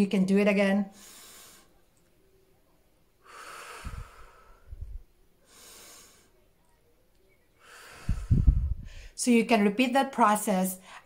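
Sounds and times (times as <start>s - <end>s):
woman breathing deeply: 0.9s - 1.8s, 3.2s - 6.4s, 7.6s - 9.2s
short low breath puffs: 3.3s - 6.4s, 7.6s - 9.1s.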